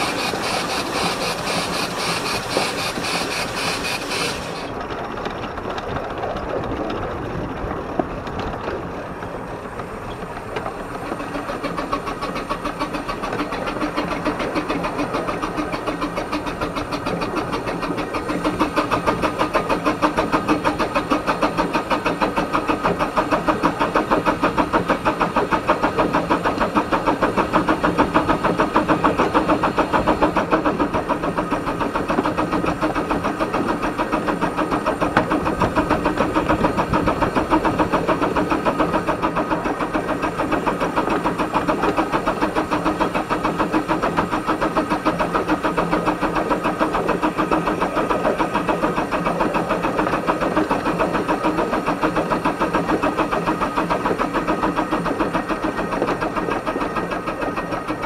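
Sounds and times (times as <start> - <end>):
steam locomotive exhaust beats: 0.0 - 58.0.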